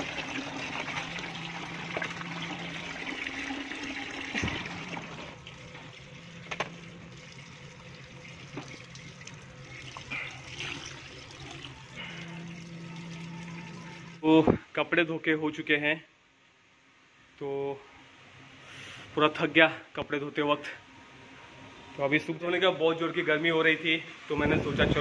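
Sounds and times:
tap water running into bucket: 0.0s - 14.2s
water splashing and sloshing: 0.0s - 14.2s.

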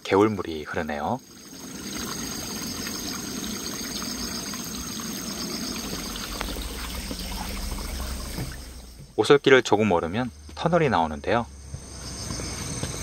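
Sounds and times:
stream flowing and trickling: 0.0s - 11.3s.

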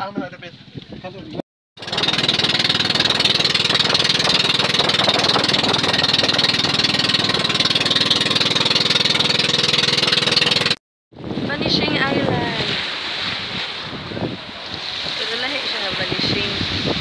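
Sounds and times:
boat engine chugging: 0.4s - 10.8s.

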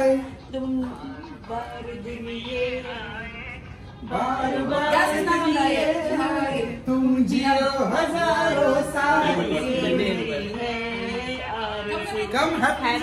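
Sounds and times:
people singing without instruments: 0.0s - 13.0s.

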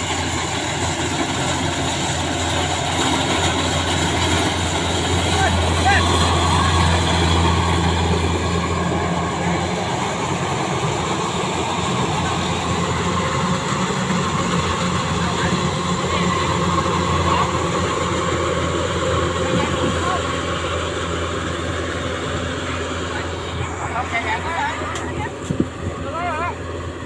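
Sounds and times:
diesel engine drone: 0.0s - 27.0s.

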